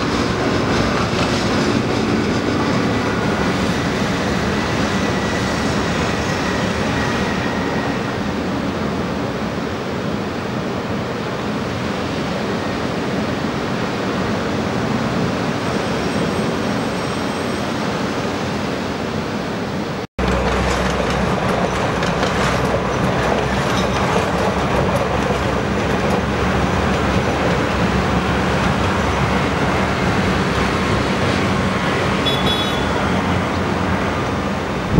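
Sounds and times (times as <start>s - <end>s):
train rumbling past: 0.0s - 34.9s
wind: 0.0s - 34.9s
wheels clattering over rails: 20.2s - 34.9s.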